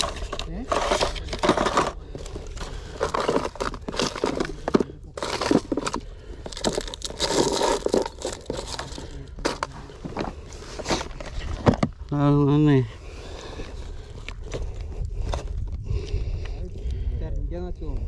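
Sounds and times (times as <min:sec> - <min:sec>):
rummaging in a plastic box: 0:00.0 - 0:12.0.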